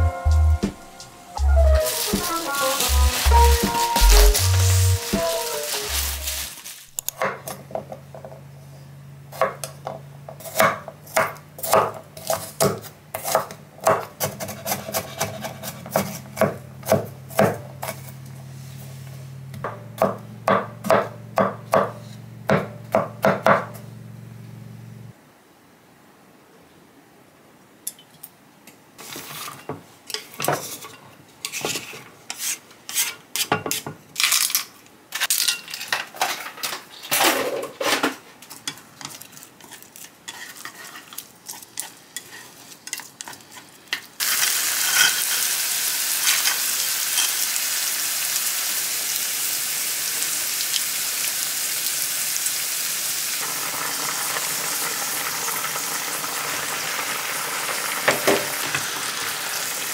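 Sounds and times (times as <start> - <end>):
food sizzling in a frying pan: 1.0 - 7.0, 44.2 - 59.9
utensils and dishes clattering: 1.8 - 7.7, 33.0 - 41.2, 44.8 - 45.5.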